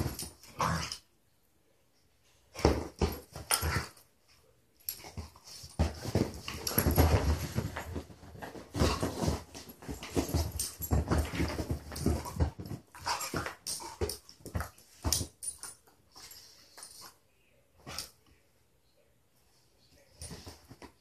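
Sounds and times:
dogs scuffling on a couch: 0:04.9 - 0:15.5, 0:20.2 - 0:21.0.

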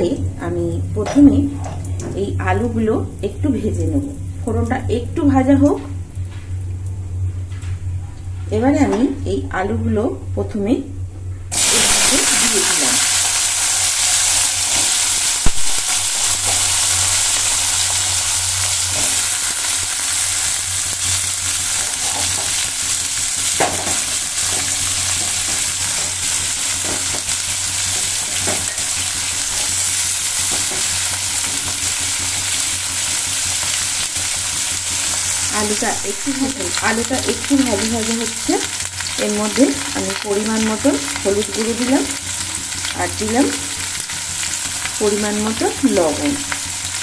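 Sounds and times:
low steady hum: 0:00.0 - 0:47.0
potato sticks frying in oil: 0:11.5 - 0:47.0.

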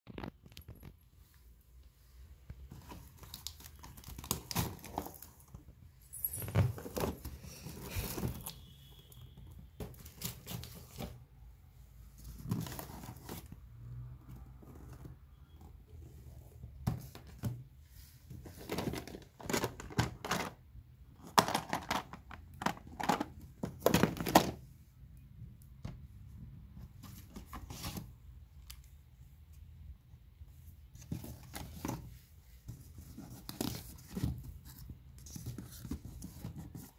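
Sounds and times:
paper and cardboard rustling: 0:02.5 - 0:11.2, 0:12.1 - 0:13.6, 0:16.2 - 0:20.6, 0:26.8 - 0:28.3, 0:30.8 - 0:36.9.

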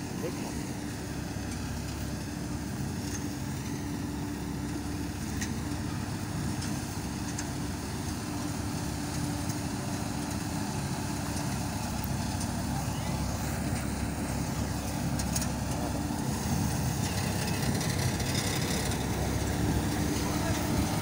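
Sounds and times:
threshing machine rumbling: 0:00.0 - 0:21.0.

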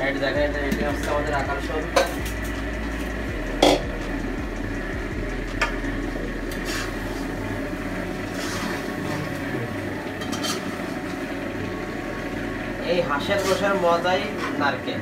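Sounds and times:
steady rushing noise: 0:00.0 - 0:09.1
metal spatula scraping in a pan: 0:06.5 - 0:07.3, 0:08.2 - 0:09.1, 0:13.2 - 0:14.7.

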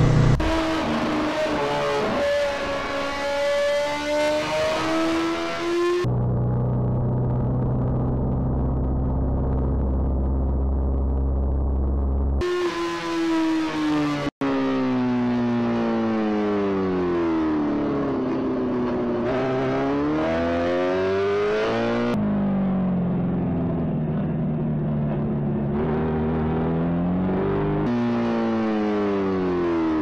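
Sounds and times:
motorcycle engine revving: 0:16.6 - 0:30.0.

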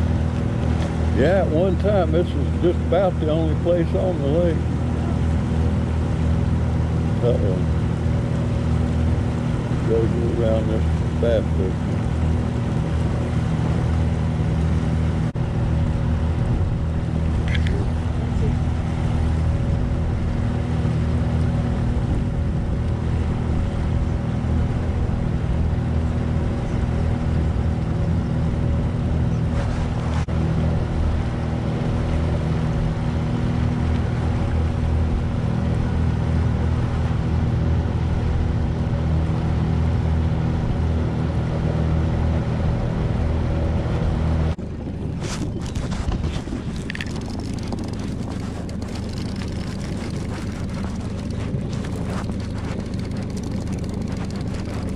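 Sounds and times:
boat motor running: 0:00.0 - 0:54.9
wind noise on microphone: 0:11.8 - 0:38.9, 0:42.6 - 0:54.9.

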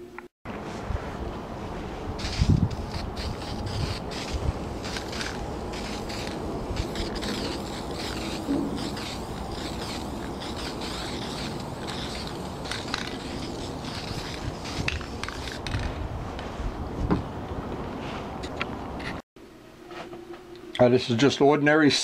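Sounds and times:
aerosol spray can hissing: 0:02.2 - 0:15.8.

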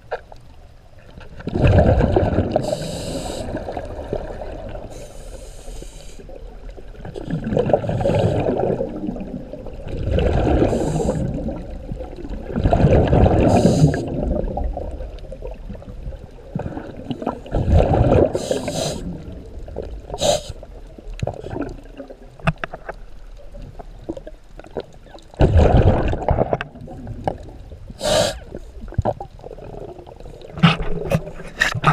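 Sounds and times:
exhaled bubbles gurgling underwater: 0:00.0 - 0:31.9
hissing regulator breaths: 0:02.6 - 0:03.6, 0:04.9 - 0:06.3, 0:10.6 - 0:11.3, 0:13.5 - 0:14.1, 0:18.4 - 0:19.1, 0:20.2 - 0:20.6, 0:28.0 - 0:28.6.

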